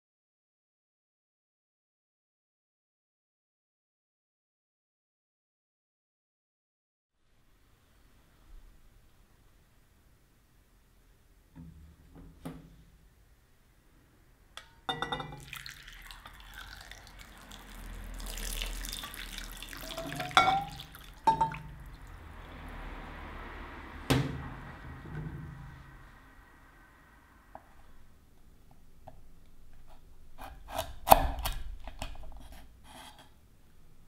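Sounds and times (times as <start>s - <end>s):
pan clinking against glass: 14.9s - 15.8s, 19.8s - 21.8s
water pouring and splashing: 15.3s - 22.7s.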